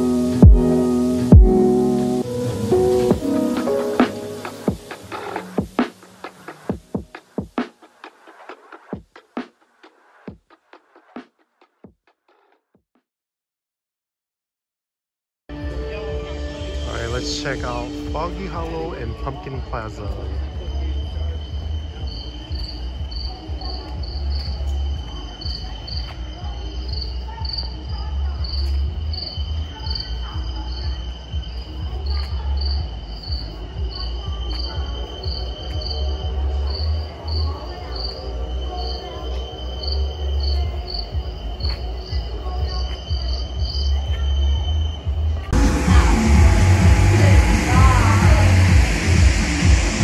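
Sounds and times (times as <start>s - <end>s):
crickets chirping: 0.0s - 10.3s, 15.6s - 50.0s
faint background music: 15.5s - 50.0s
low rumble: 43.8s - 50.0s.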